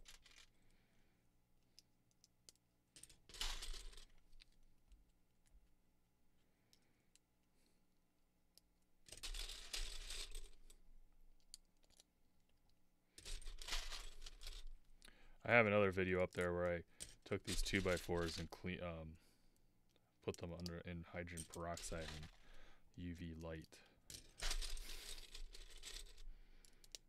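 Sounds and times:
plastic bricks clattering: 9.1 - 10.8, 13.2 - 14.7, 17.1 - 18.5, 21.3 - 22.5, 24.2 - 27.0.

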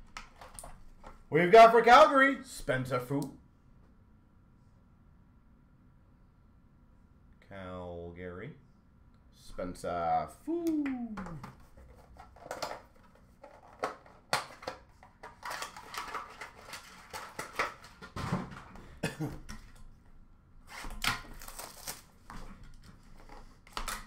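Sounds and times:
wrapping rustling: 11.6 - 18.0, 20.8 - 24.0.

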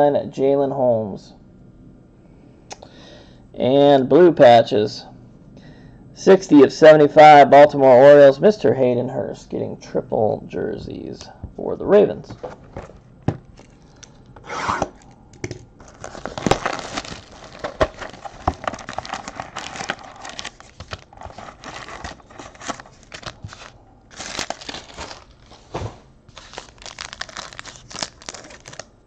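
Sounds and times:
plastic wrap crinkling and tearing: 15.8 - 29.0.

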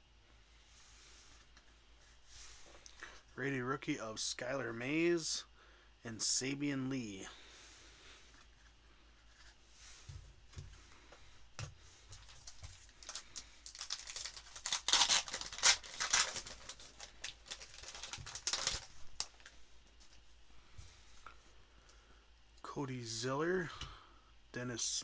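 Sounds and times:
foil pack tearing: 12.2 - 19.5.

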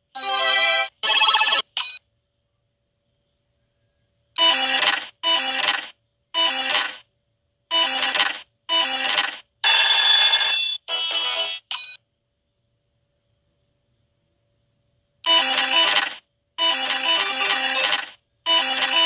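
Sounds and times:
slot machine chiming jingles: 0.2 - 2.0.

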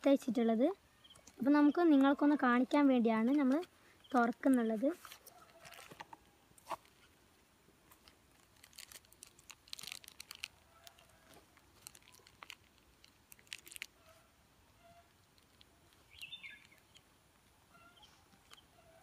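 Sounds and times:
plastic bag crinkling: 4.2 - 6.1, 7.9 - 14.2, 15.0 - 17.1
cardboard packaging rustling: 4.2 - 7.1, 7.9 - 14.1.

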